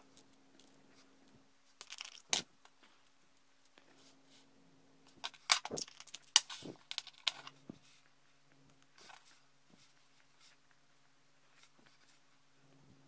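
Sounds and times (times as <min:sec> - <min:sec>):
low steady hum: 0:00.0 - 0:13.0
plastic pot of bearings rattling: 0:01.8 - 0:02.4, 0:05.2 - 0:07.6.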